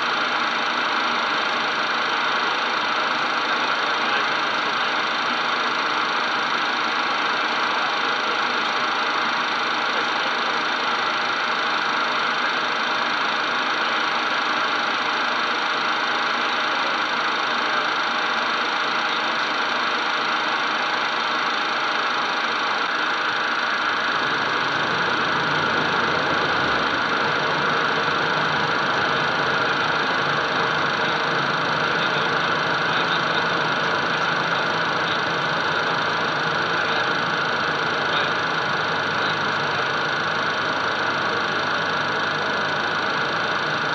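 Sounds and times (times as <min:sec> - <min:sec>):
jet cockpit airflow rushing: 0:22.8 - 0:43.9.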